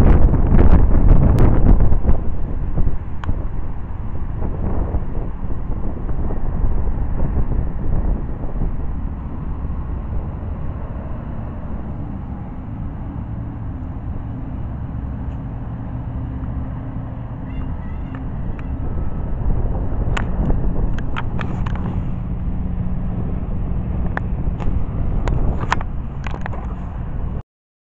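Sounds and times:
distant diesel truck engine: 0.0 - 27.4
road traffic: 0.0 - 27.4
wind buffeting microphone: 0.0 - 27.4
faint high squeaks: 17.4 - 18.8.

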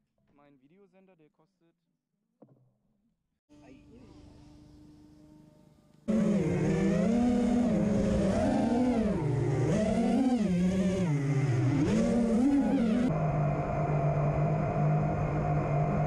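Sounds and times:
quadcopter motors whining: 3.5 - 16.0.

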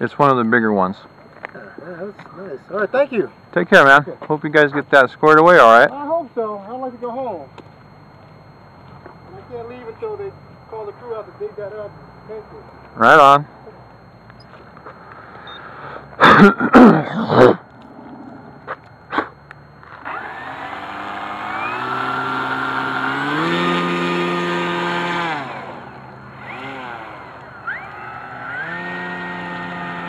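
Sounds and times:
model airplane motor whine: 17.6 - 30.0.

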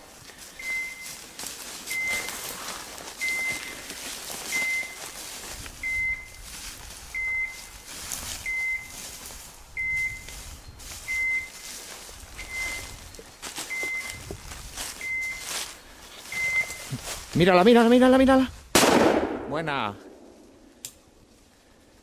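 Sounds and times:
footsteps through dry brush: 0.0 - 18.7
short high beeps: 0.6 - 1.2, 1.9 - 2.4, 3.2 - 3.8, 4.5 - 5.0, 5.8 - 6.4, 7.2 - 7.7, 8.5 - 8.9, 9.8 - 10.3, 11.0 - 11.7, 12.4 - 14.3, 15.0 - 15.5, 16.3 - 17.0.

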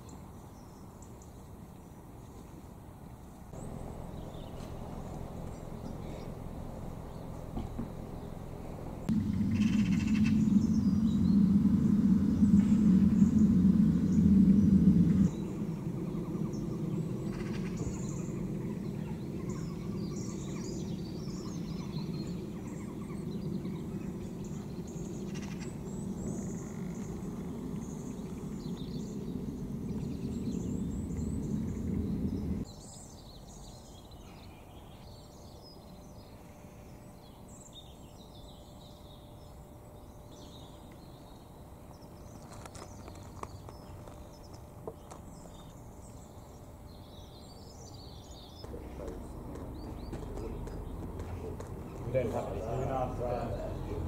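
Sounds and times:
jet aircraft rumble overhead: 2.0 - 54.0
small birds chirping: 3.5 - 54.0.

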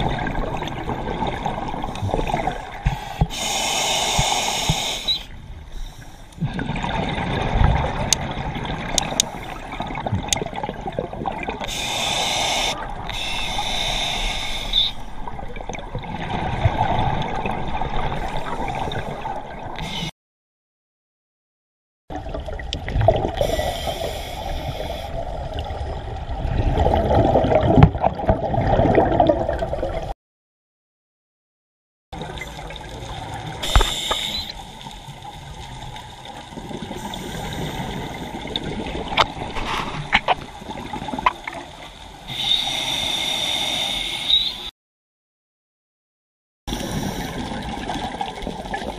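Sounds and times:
exhaled bubbles rushing: 0.0 - 2.9, 22.1 - 23.6, 25.1 - 30.1, 36.4 - 41.6
regulator inhalation hiss: 3.3 - 5.3, 11.7 - 15.1, 23.4 - 25.2, 33.6 - 34.6, 42.3 - 44.7.

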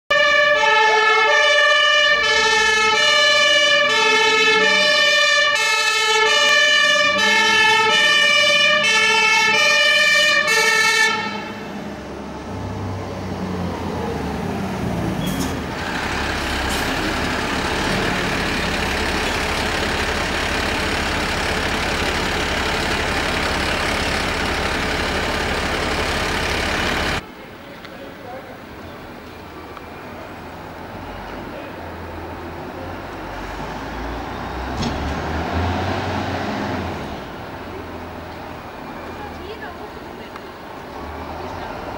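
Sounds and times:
two-tone siren: 0.1 - 11.6
road noise: 0.1 - 41.9
truck engine running: 11.3 - 33.3.

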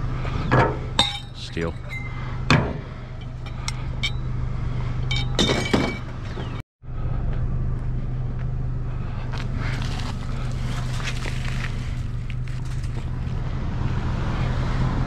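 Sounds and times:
vehicle engine humming: 0.0 - 15.0
metallic clinks of scrap: 3.0 - 4.3.

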